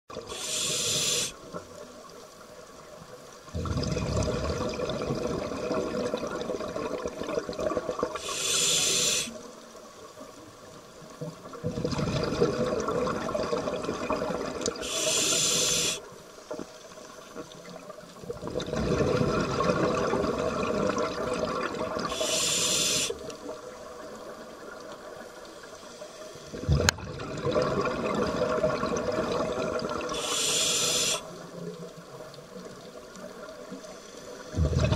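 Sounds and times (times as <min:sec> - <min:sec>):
regulator inhalation hiss: 0:00.2 - 0:01.5, 0:08.2 - 0:09.5, 0:14.8 - 0:16.1, 0:22.0 - 0:23.3, 0:30.1 - 0:31.4
exhaled bubbles rushing: 0:03.5 - 0:08.2, 0:11.5 - 0:14.8, 0:18.2 - 0:22.3, 0:26.5 - 0:30.2, 0:34.5 - 0:34.9.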